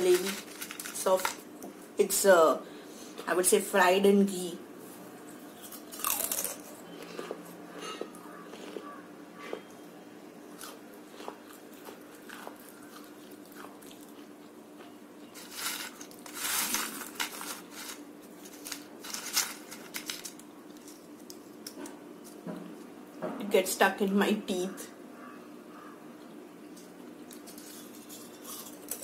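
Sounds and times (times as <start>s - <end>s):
hand rummaging through crisp strips: 0.0s - 1.4s, 15.4s - 21.2s
crunching and chewing snacks: 0.0s - 1.5s, 5.6s - 9.7s, 10.5s - 22.4s
crisp snack snapping: 5.8s - 6.7s.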